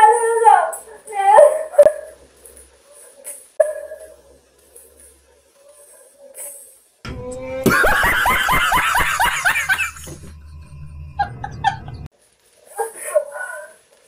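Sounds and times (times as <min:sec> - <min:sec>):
person laughing hysterically: 0:07.6 - 0:10.3, 0:11.2 - 0:12.1
soft laughter and voices: 0:11.2 - 0:13.8.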